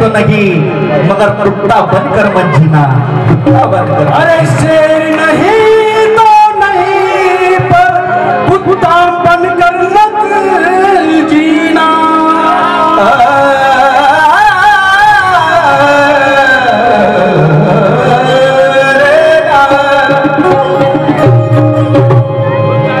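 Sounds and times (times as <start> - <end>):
harmonium chords: 0.0 - 23.0
man singing wordless melody: 3.2 - 22.4
hand drum: 20.0 - 23.0.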